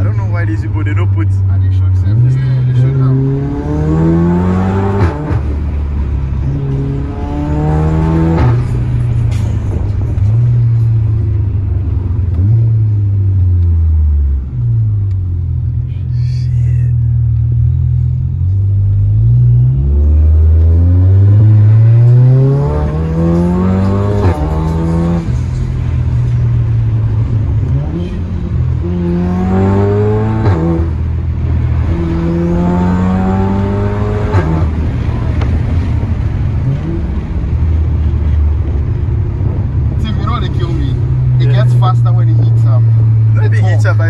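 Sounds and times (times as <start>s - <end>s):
car engine accelerating hard: 0.0s - 15.8s, 17.0s - 44.0s.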